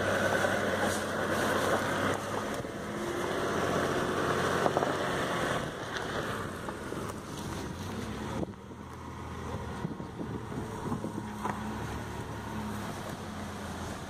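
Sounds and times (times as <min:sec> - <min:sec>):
vehicle engine running low: 0:00.0 - 0:14.0.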